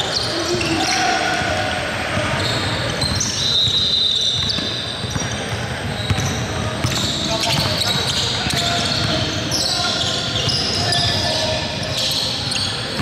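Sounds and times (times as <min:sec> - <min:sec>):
players' voices: 0:00.0 - 0:13.0
sneakers squeaking on floor: 0:00.0 - 0:13.0
basketball bouncing: 0:04.4 - 0:09.2.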